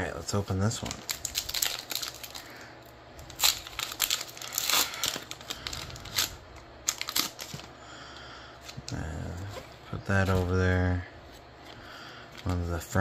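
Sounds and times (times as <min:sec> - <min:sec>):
foil wrapper crinkling and tearing: 0:00.4 - 0:07.7.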